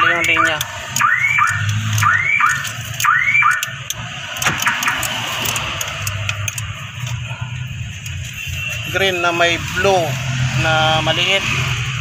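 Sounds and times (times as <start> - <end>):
car alarm siren whooping: 0.0 - 3.8
sharp clicks: 0.0 - 7.2.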